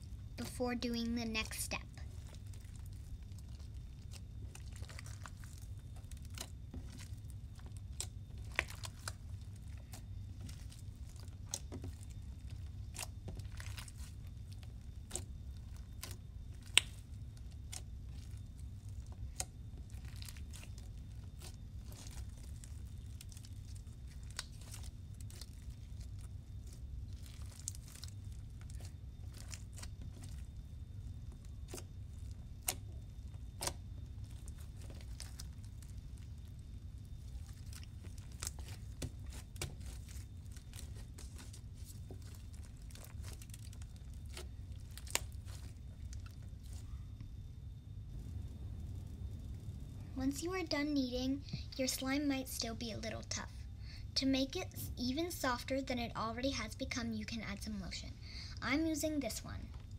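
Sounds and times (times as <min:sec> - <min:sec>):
steady low hum: 0:00.0 - 0:59.9
slime popping: 0:01.3 - 0:46.9
slime crackling and snapping: 0:01.4 - 0:47.4.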